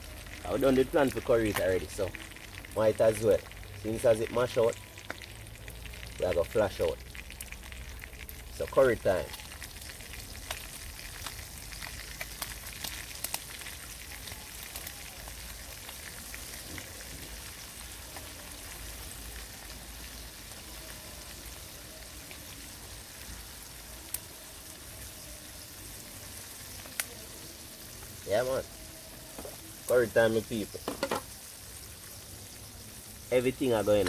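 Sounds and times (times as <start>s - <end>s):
fish frying in oil: 0.0s - 34.0s.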